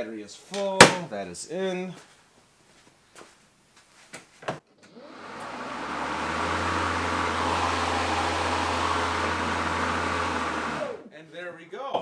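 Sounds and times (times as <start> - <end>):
electric lawnmower humming: 4.9 - 11.1.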